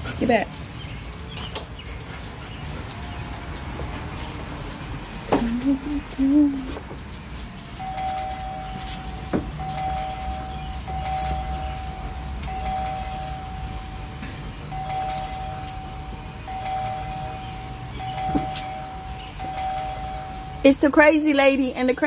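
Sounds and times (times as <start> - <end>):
two-note doorbell chime: 7.8 - 22.0.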